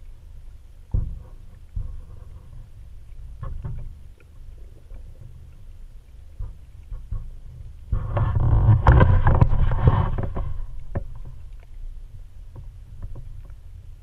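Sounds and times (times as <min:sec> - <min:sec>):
low underwater rumble: 0:00.0 - 0:14.0.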